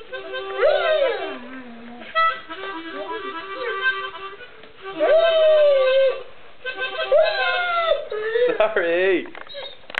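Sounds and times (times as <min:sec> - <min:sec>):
harmonica playing chords: 0:00.0 - 0:05.2, 0:05.8 - 0:08.3
dog howling: 0:00.6 - 0:02.5, 0:05.0 - 0:06.3.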